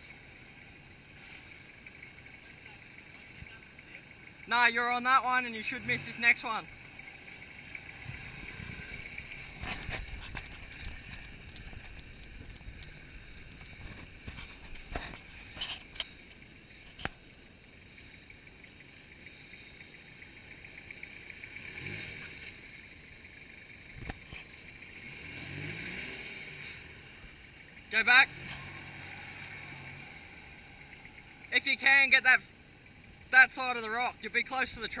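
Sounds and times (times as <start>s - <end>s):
vehicle engine running slowly: 0.0s - 35.0s.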